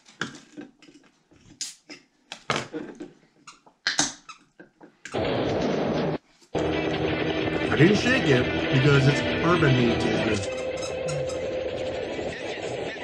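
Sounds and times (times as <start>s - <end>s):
loud burst of music: 5.2s - 13.0s.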